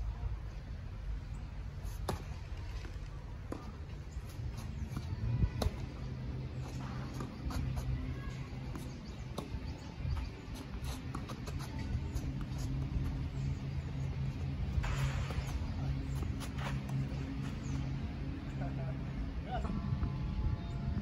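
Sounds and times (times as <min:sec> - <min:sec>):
racket striking tennis ball: 0:14.8 - 0:17.2.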